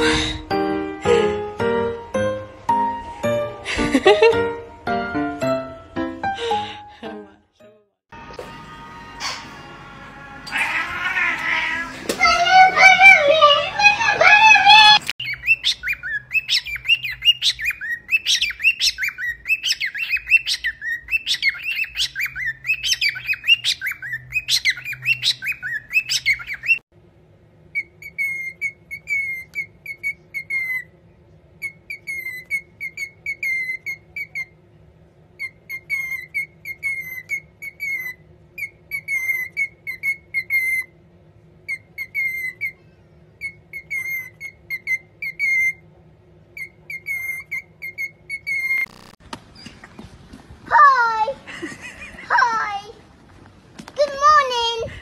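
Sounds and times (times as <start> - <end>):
cockatiel squawking: 10.5 - 26.8, 31.6 - 34.5, 35.4 - 40.9, 46.6 - 49.0
cockatiel whistled chirps: 15.2 - 26.8, 27.8 - 30.9, 31.6 - 34.5, 35.4 - 40.9, 41.7 - 42.8, 43.4 - 45.8, 46.6 - 49.7.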